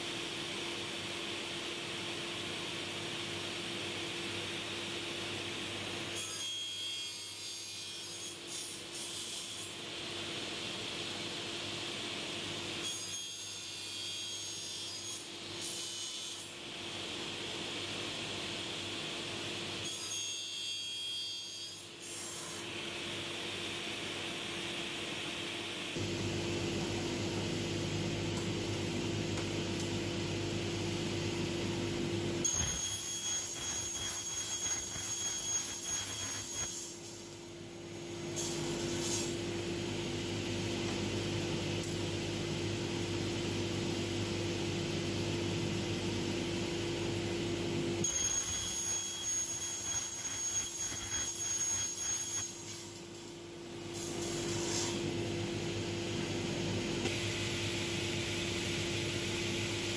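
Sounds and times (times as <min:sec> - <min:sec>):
saw blade cutting whine: 0:32.4 - 0:37.3, 0:48.0 - 0:53.0.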